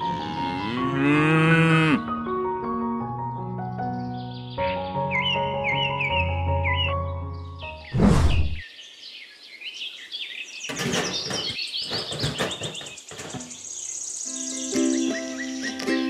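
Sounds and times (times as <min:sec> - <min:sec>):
small birds chirping: 0:03.4 - 0:16.0.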